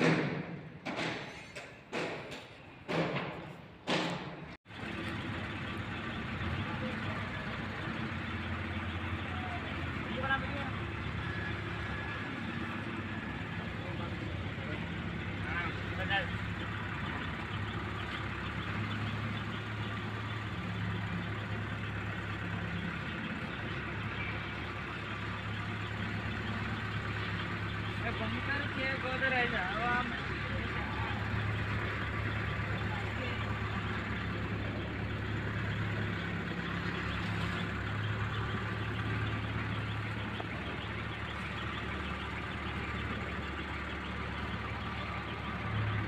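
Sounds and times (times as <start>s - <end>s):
hammer knocks on steel: 1.9s - 4.4s
diesel engine humming: 3.6s - 46.0s.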